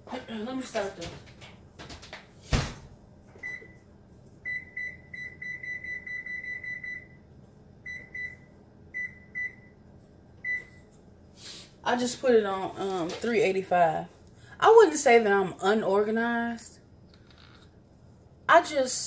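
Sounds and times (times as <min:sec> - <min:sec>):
oven control panel beeping: 0:03.4 - 0:03.8, 0:04.4 - 0:09.8, 0:10.4 - 0:10.8.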